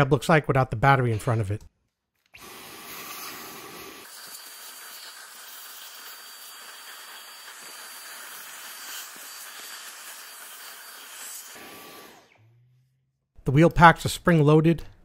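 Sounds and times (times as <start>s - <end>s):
vacuum cleaner sucking air: 2.4s - 12.4s.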